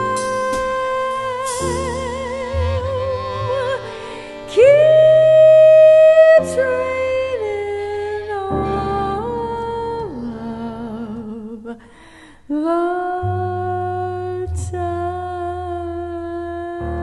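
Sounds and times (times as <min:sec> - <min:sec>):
jazz band accompanying: 0:00.0 - 0:09.8
woman singing jazz with vibrato: 0:00.0 - 0:11.9, 0:12.5 - 0:17.0.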